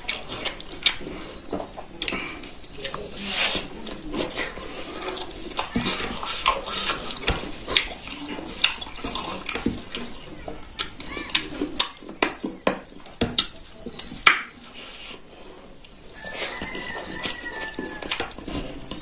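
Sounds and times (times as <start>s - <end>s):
wet chewing and lip-smacking: 0.0s - 3.1s, 4.3s - 12.5s.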